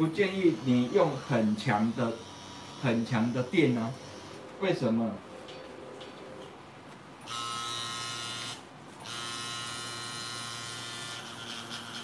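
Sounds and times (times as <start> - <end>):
tattoo pen motor whine: 0.0 - 4.4, 7.2 - 12.0.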